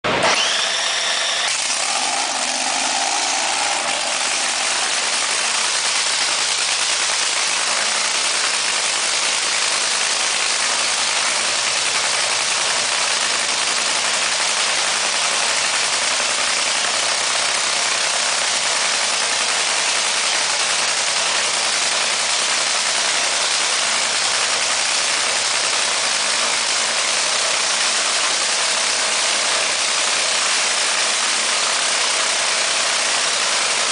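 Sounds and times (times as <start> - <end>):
dragster engine idling: 1.5 - 33.9.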